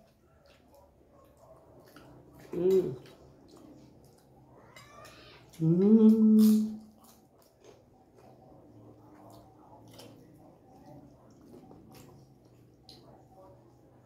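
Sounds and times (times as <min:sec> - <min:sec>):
people chewing: 0:00.0 - 0:14.0
loud held vocal hum: 0:05.5 - 0:06.9.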